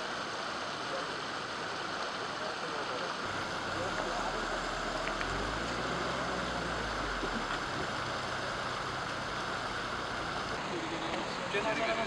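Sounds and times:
floodwater rushing: 0.0 - 12.0
low hum: 3.2 - 10.6.

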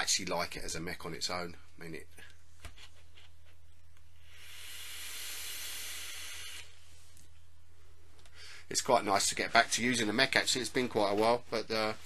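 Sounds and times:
vape draw hiss with coil sizzling: 4.1 - 7.3.

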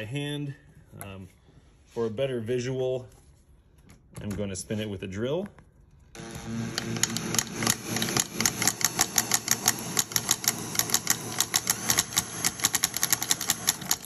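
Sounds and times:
power drill whirring: 6.1 - 14.0
crankshaft clicking against cases: 6.8 - 14.0.

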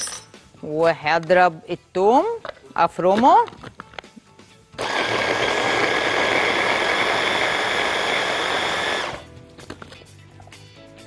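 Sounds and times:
electric hand blender motor whine: 4.8 - 9.3.

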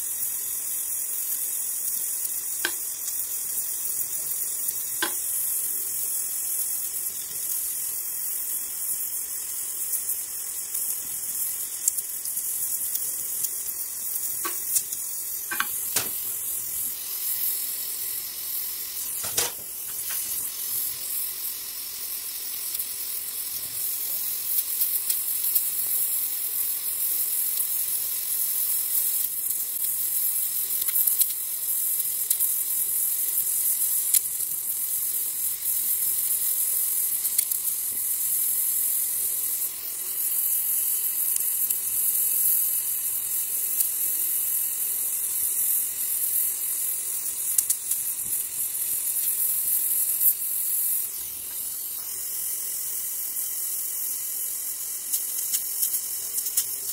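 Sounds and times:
welding torch flame hissing: 0.0 - 56.9
faint crackles: 54.7 - 56.9.

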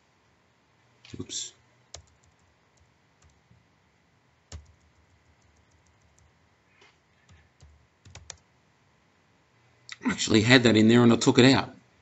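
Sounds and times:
computer keyboard keystrokes: 1.9 - 3.4, 4.5 - 6.3, 7.3 - 8.4.

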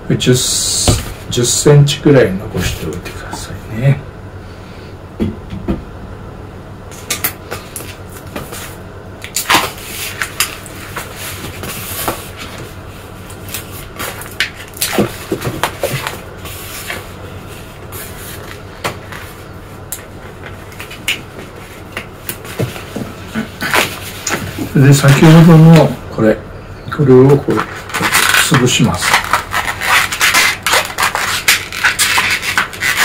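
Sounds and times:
rubber balloon squeaking: 27.7 - 33.0.

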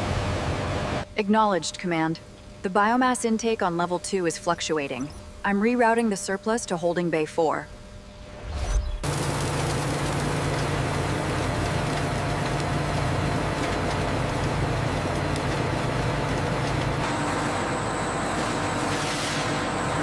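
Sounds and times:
grinding machinery humming: 9.0 - 20.0.

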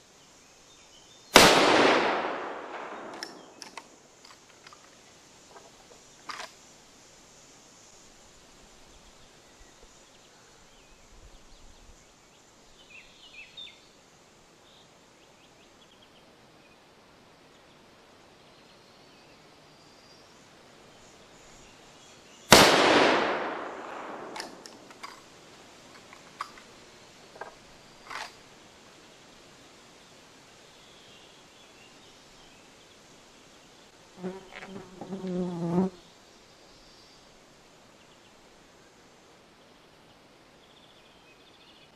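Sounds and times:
rifle shot: 1.4 - 3.8, 22.5 - 25.1
sharp clicks: 2.7 - 4.8, 23.9 - 25.2.

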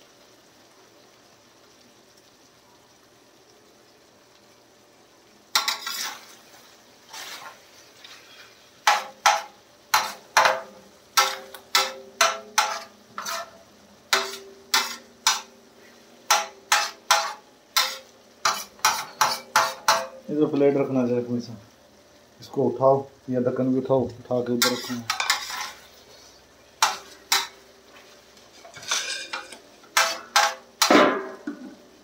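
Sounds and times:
faint sizzle from pan: 0.0 - 32.0
metal spatula scraping steel pan: 5.6 - 15.5, 16.3 - 20.2, 24.6 - 31.6.

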